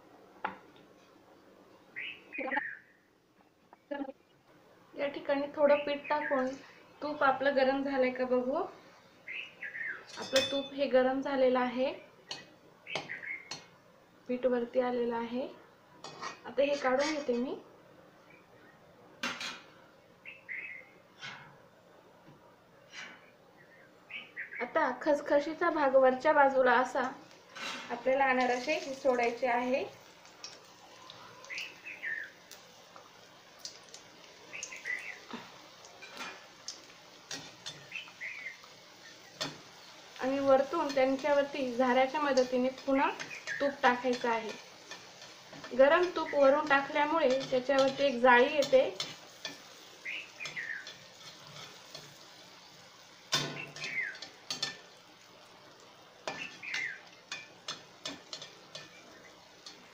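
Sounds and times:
bird chirping: 0:01.8 - 0:04.4, 0:09.0 - 0:10.4, 0:12.8 - 0:13.6, 0:20.2 - 0:21.0, 0:23.5 - 0:24.7, 0:30.9 - 0:32.4, 0:34.4 - 0:35.4, 0:37.7 - 0:40.0, 0:43.2 - 0:43.8, 0:49.8 - 0:51.0, 0:53.4 - 0:54.3, 0:56.3 - 0:57.1, 0:58.8 - 0:59.5
food sizzling in hot fat: 0:05.0 - 0:17.6, 0:19.2 - 0:59.9
metal skimmer clinking on pan: 0:10.1 - 0:10.8, 0:47.2 - 0:49.7, 0:53.3 - 0:54.9.

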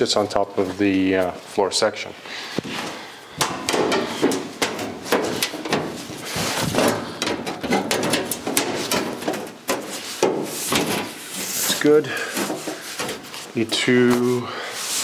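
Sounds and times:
steel panel clanking and rattling: 0:03.4 - 0:11.6.

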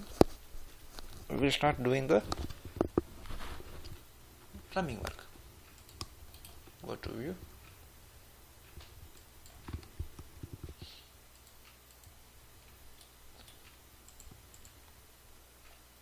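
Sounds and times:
low steady hum: 0:00.0 - 0:16.0
computer mouse clicks: 0:05.0 - 0:06.7, 0:08.7 - 0:15.0.

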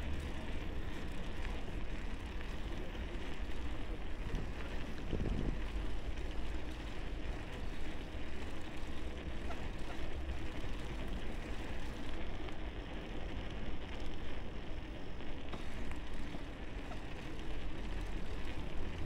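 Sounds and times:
bicycle road noise: 0:00.0 - 0:19.0
wind rumble: 0:04.0 - 0:06.4.

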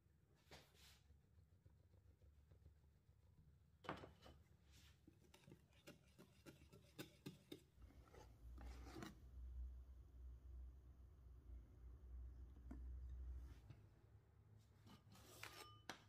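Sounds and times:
kitchen utensil tapping and scraping: 0:03.8 - 0:09.2, 0:14.8 - 0:16.0.

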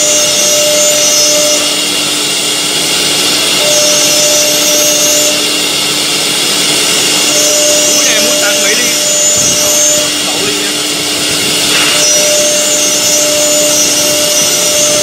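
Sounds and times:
high machining tone: 0:00.0 - 0:15.0
wood router machining: 0:00.0 - 0:15.0.

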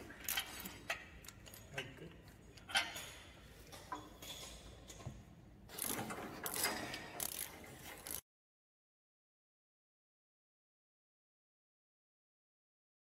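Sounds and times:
ratchet wrench clicking: 0:05.7 - 0:08.2.

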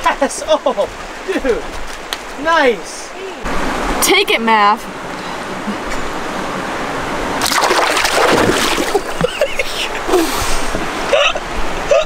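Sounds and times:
river water over rocks: 0:00.0 - 0:12.0
fish splashing in shallows: 0:07.4 - 0:09.3.

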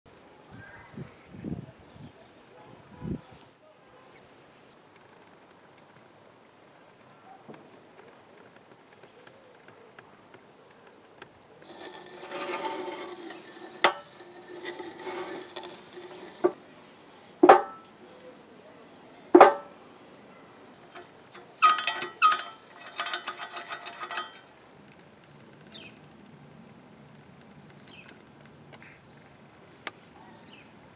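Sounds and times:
metallic clatter: 0:11.6 - 0:16.7, 0:20.8 - 0:24.6
metallic grinding and scraping: 0:11.6 - 0:18.4, 0:19.5 - 0:24.6
loud metal clanks: 0:20.8 - 0:24.5.

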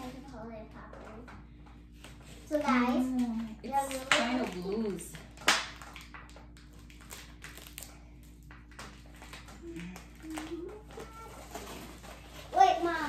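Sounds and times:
duct tape unwinding: 0:08.7 - 0:12.9.

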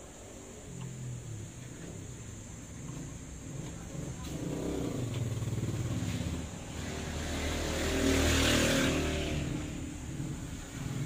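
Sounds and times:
vehicle passing by: 0:02.8 - 0:11.0.

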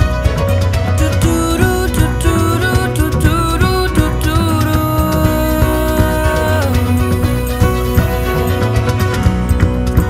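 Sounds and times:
bass: 0:00.0 - 0:10.0
drum beat: 0:00.0 - 0:10.0
violins bowing: 0:04.8 - 0:10.0.

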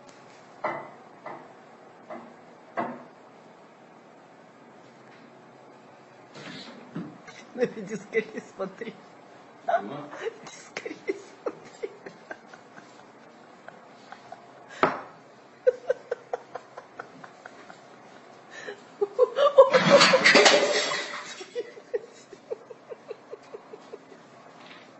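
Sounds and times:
person laughing: 0:07.3 - 0:09.0, 0:09.7 - 0:14.9, 0:15.6 - 0:24.3.

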